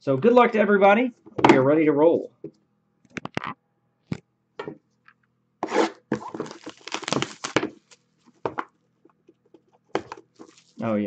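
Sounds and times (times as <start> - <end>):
box knocks and scrapes: 5.6 - 7.8
plastic wrap tearing and crackling: 5.7 - 8.1, 10.3 - 10.9.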